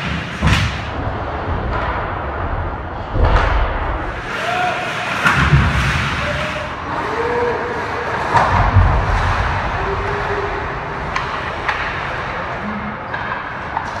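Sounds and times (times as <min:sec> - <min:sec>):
hockey sticks clacking: 0:00.0 - 0:01.0, 0:04.1 - 0:06.8, 0:11.0 - 0:14.0
echoing arena noise: 0:00.0 - 0:14.0.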